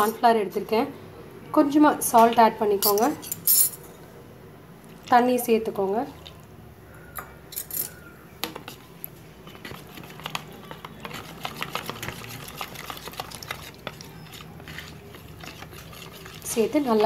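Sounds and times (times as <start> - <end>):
spoon scraping a plastic bowl: 8.5 - 17.0.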